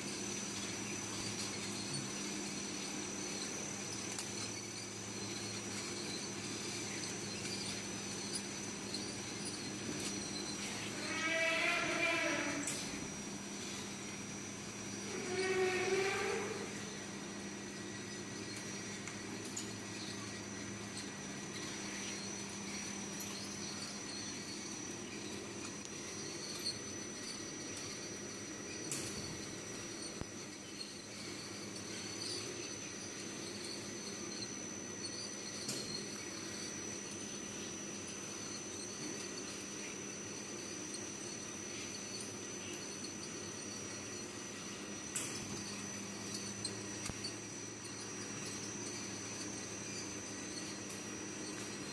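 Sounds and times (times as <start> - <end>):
high-pitched machine whine: 0.0 - 51.9
machine hum: 0.0 - 51.9.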